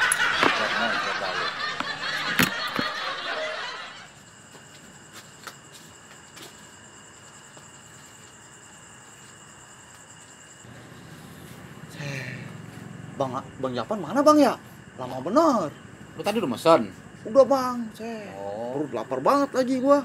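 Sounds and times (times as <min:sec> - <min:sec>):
burst of laughter: 0:00.0 - 0:04.1.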